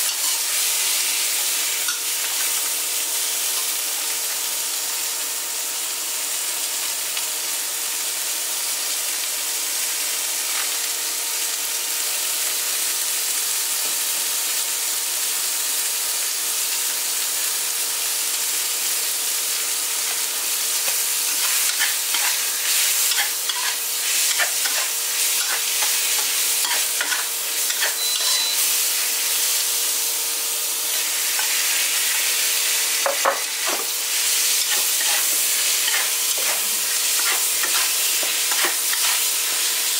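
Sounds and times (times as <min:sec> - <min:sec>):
food sizzling in a pan: 0:00.0 - 0:39.9
utensil scraping in a pan: 0:20.8 - 0:29.7, 0:33.0 - 0:39.9.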